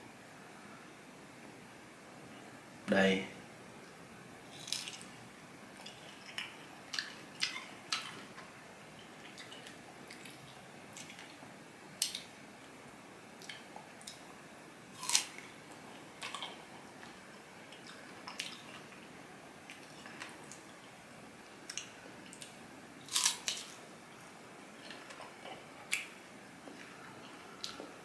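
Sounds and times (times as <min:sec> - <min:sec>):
fruit crunching while chewed: 0:04.5 - 0:05.1, 0:15.0 - 0:15.4, 0:23.1 - 0:23.7.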